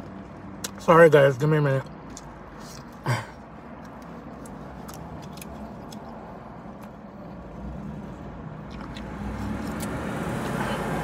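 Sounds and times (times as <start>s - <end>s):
wet chewing mouth clicks: 8.6s - 10.6s.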